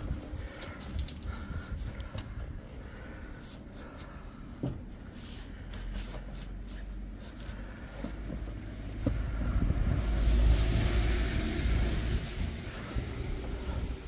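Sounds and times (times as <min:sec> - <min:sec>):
low wind rumble on microphone: 0:00.0 - 0:03.4, 0:07.7 - 0:14.0.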